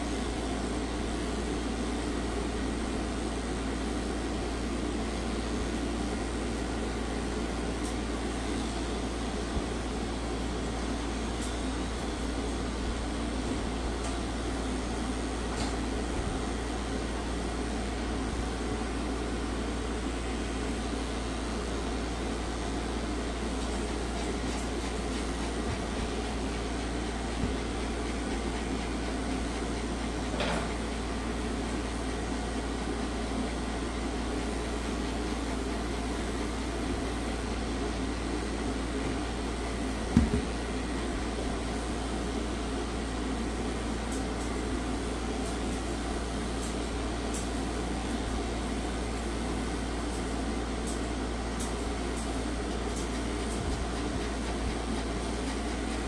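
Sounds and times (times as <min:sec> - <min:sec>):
machine hum: 0:05.2 - 0:42.5.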